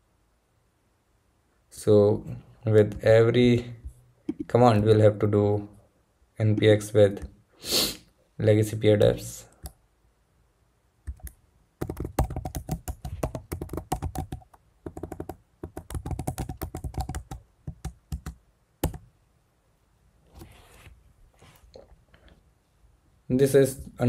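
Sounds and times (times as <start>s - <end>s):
typing on computer keyboard: 11.1s - 19.0s.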